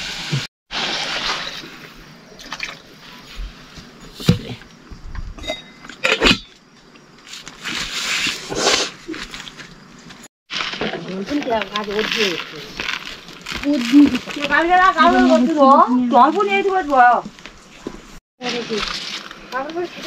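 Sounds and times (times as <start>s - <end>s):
water splashing and pouring: 0.0s - 3.0s
dishes clinking: 5.4s - 6.6s.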